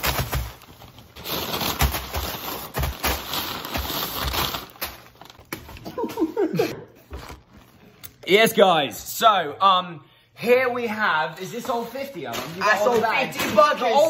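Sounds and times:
paper bags crinkling: 0.0 - 6.2.

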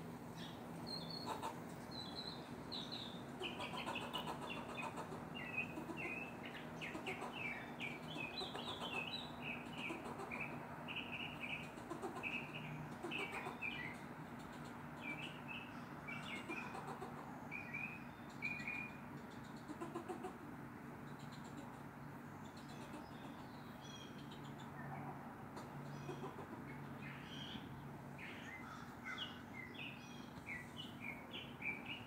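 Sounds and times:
squirrel chirping barks: 0.4 - 20.3.

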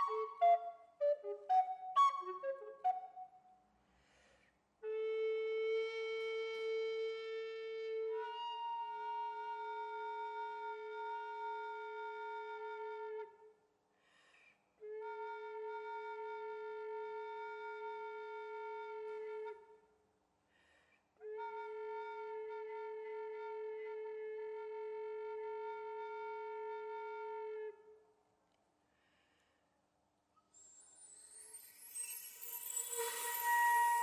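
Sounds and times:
person breathing: 3.9 - 4.7, 14.0 - 14.7, 20.4 - 21.2, 28.8 - 29.8.

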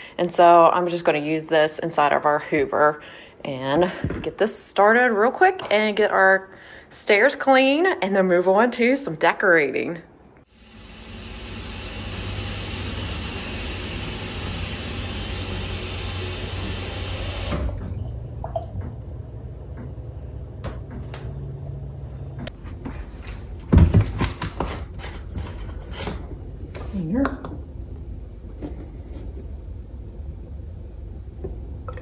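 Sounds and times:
tap running water into tank: 10.9 - 19.0.

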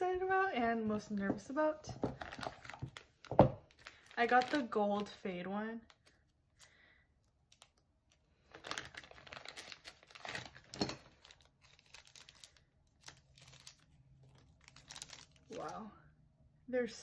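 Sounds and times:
packaging crinkling by hand: 2.0 - 5.2, 5.8 - 15.8.

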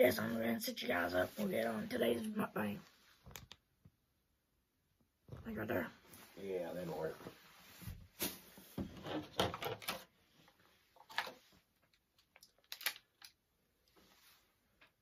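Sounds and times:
plastic packaging crackling: 12.2 - 13.4.

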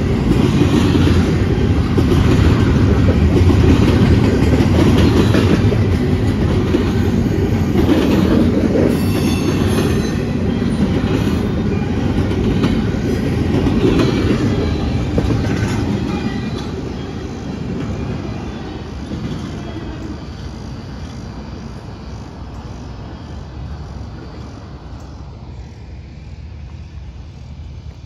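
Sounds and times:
freight train wheels clattering: 0.0 - 24.6
high-pitched wheel squeal: 8.9 - 12.0.

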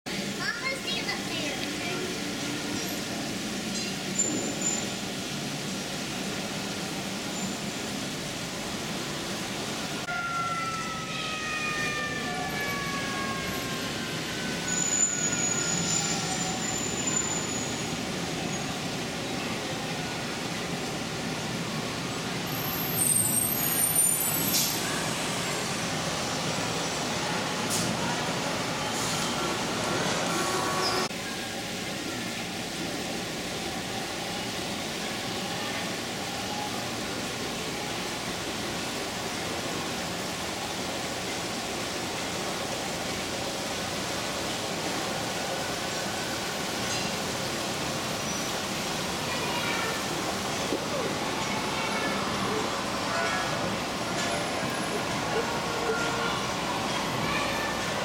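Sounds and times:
model trains running: 0.1 - 58.0
brief high tones: 10.1 - 13.3.

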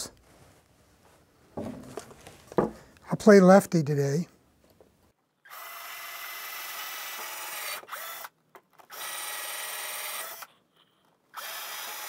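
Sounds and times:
electric drill boring into wood: 5.5 - 10.5, 11.3 - 12.0.

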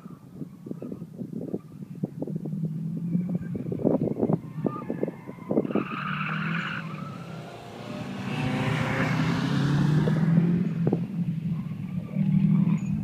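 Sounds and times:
car engines running under load: 0.0 - 13.0
tyres skidding: 2.2 - 13.0
tyre squeal: 3.1 - 8.0.

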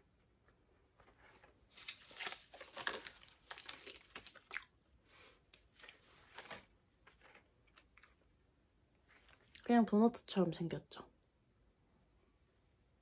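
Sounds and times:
paper liner crinkling: 1.0 - 4.8, 5.6 - 8.3.

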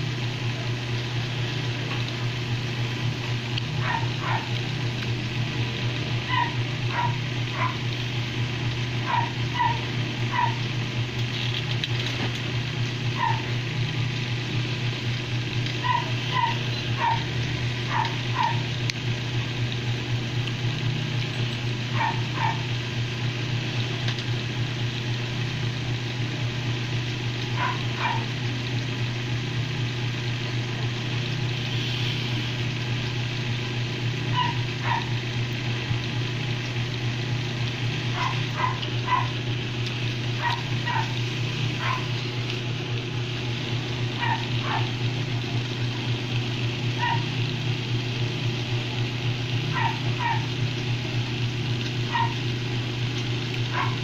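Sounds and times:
steady low hum: 0.0 - 54.0
dog yipping: 3.8 - 4.6, 6.3 - 7.8, 9.0 - 10.6, 13.2 - 13.6, 15.8 - 17.3, 17.9 - 18.6, 21.9 - 22.7, 27.6 - 28.3, 34.3 - 35.2, 38.1 - 39.4, 40.4 - 41.2, 41.8 - 42.2, 44.2 - 45.0, 47.0 - 47.3, 49.7 - 50.5, 52.1 - 52.4, 53.7 - 54.0.

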